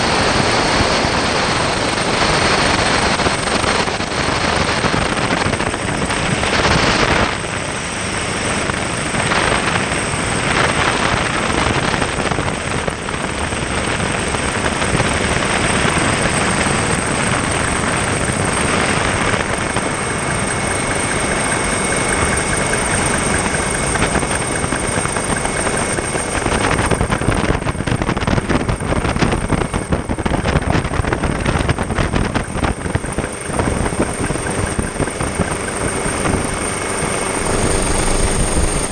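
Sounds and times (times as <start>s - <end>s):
aircraft engines: 0.0s - 38.9s
rushing air: 32.4s - 38.9s.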